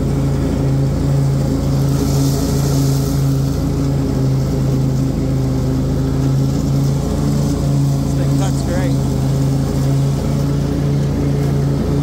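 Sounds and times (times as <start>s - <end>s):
lawn mower engine running: 0.0s - 12.0s
mower blades cutting grass: 0.0s - 12.0s.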